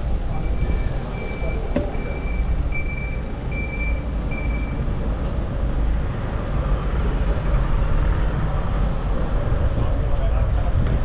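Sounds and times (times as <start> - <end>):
reversing alarm beeps: 0.4 - 4.8.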